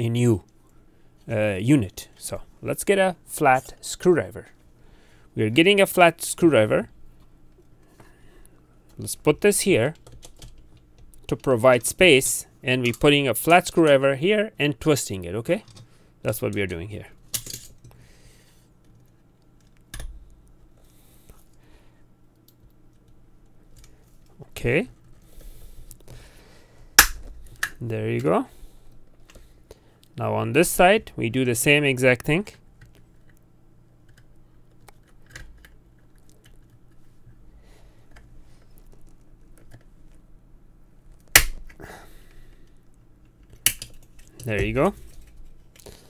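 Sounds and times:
loud sharp plastic snap: 0:27.0 - 0:27.8, 0:41.2 - 0:41.8.

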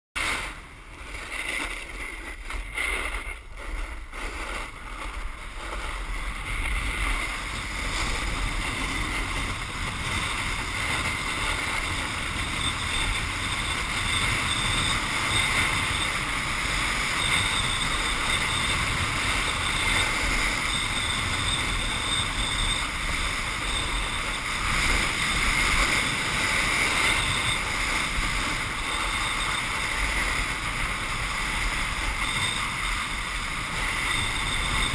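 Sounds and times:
board sliding over snow: 0:00.2 - 0:34.9
wind rushing over microphone: 0:00.2 - 0:34.9.

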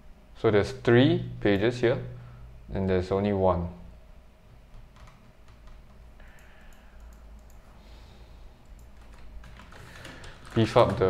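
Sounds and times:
computer keyboard and mouse clicking: 0:04.7 - 0:07.6, 0:08.6 - 0:11.0.

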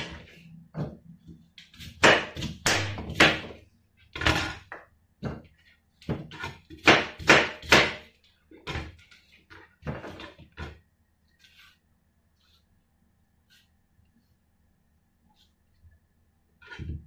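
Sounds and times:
knife chopping on cutting board: 0:00.0 - 0:03.6, 0:05.2 - 0:09.0.

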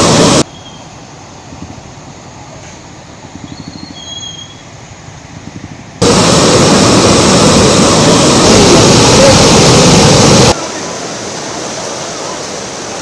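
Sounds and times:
river rushing: 0:00.0 - 0:13.0
short high whistles: 0:00.4 - 0:00.9, 0:03.6 - 0:04.6.

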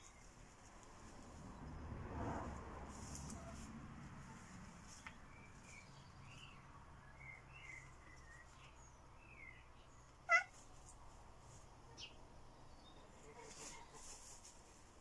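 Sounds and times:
cat meowing: 0:10.2 - 0:10.6.

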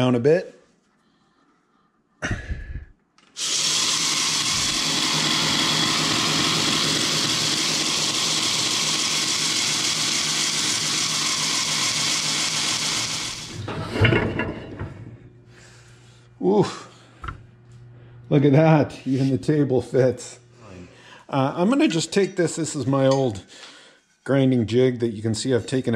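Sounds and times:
belt grinder running: 0:03.3 - 0:14.2.

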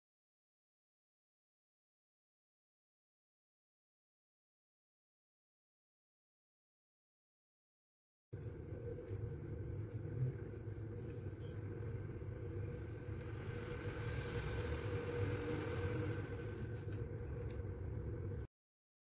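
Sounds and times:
low background rumble: 0:08.4 - 0:18.5.

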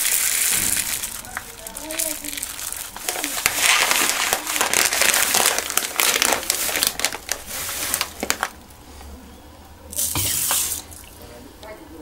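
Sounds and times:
plastic bag crinkling: 0:00.0 - 0:08.7.

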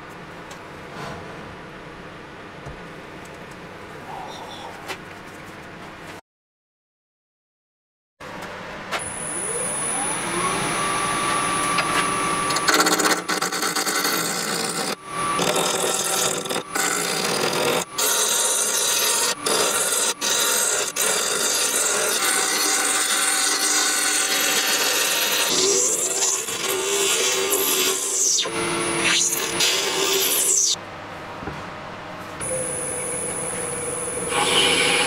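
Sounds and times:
lathe motor whining: 0:09.2 - 0:30.8, 0:32.5 - 0:35.0
turning tool cutting wood: 0:09.5 - 0:30.8, 0:34.2 - 0:35.0.

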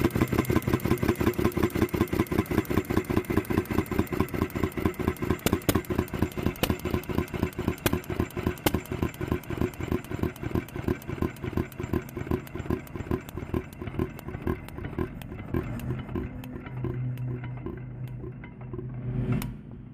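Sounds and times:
gas engine running: 0:00.0 - 0:19.9.

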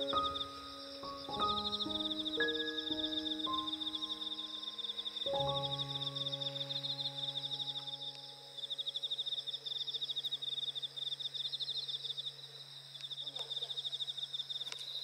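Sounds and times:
insects chirping in rapid trills: 0:00.0 - 0:15.0.

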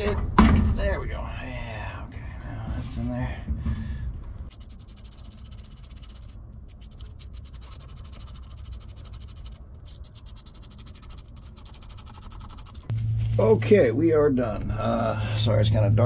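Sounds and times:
ratchet wrench clicking fast: 0:04.5 - 0:12.9.

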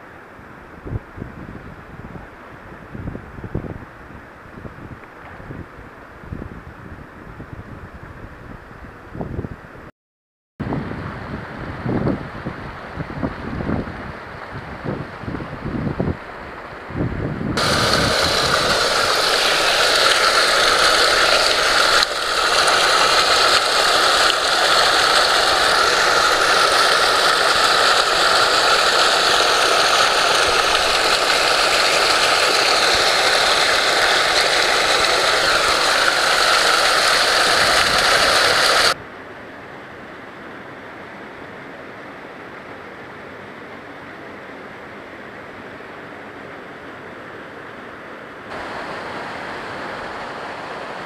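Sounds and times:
mountain stream water rushing: 0:11.5 - 0:39.0, 0:48.5 - 0:51.0.

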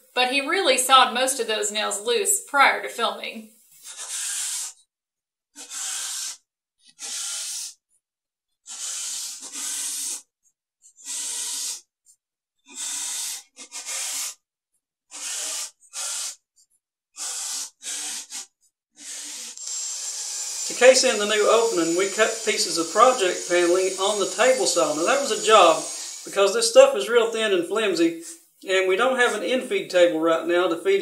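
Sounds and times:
cordless drill driving screws: 0:19.0 - 0:26.7.

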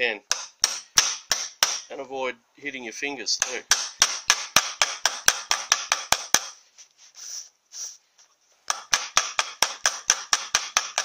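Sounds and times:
hammer tapping on steel plate: 0:03.4 - 0:06.6, 0:08.7 - 0:11.0.

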